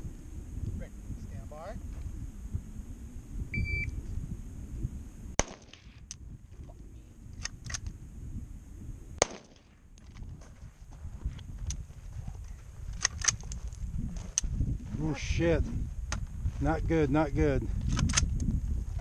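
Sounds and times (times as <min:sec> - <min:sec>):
electronic beep: 0:03.5 - 0:04.0
rifle shots: 0:05.4 - 0:06.0, 0:09.2 - 0:09.8.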